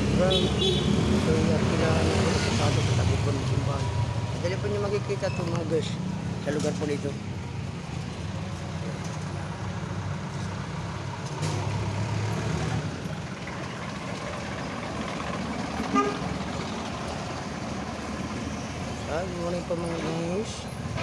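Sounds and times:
street traffic engine rumble: 0:00.0 - 0:21.0
vehicle horn toot: 0:00.3 - 0:01.0, 0:15.9 - 0:16.3.

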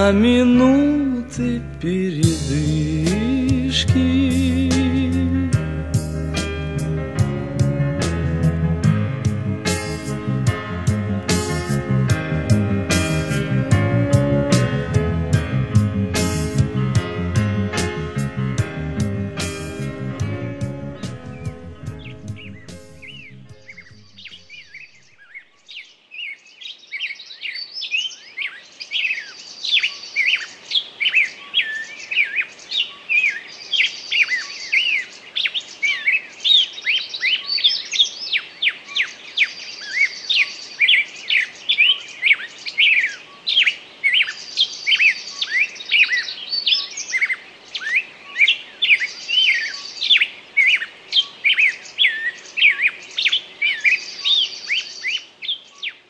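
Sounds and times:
songbirds chirping and whistling: 0:19.4 - 0:56.0
brief high bird trill: 0:21.3 - 0:25.5.

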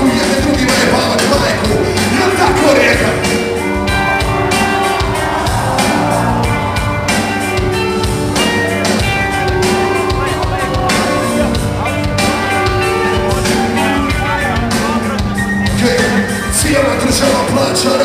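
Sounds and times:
person rapping into microphone: 0:00.0 - 0:03.2
rock band playing loudly: 0:00.0 - 0:18.0.

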